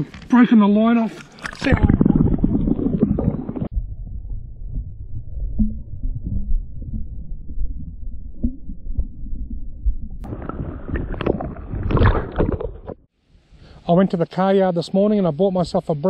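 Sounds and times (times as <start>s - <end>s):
underwater water rumbling: 1.3s - 13.1s
sharp knocks and splashes: 10.2s - 13.1s.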